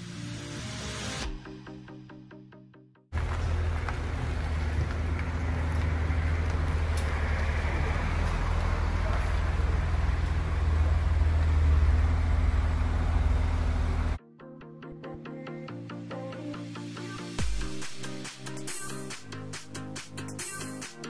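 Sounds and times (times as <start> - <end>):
road and tyre noise: 3.1 - 14.2
car engine rumble: 3.2 - 14.2
electronic music: 14.2 - 21.0.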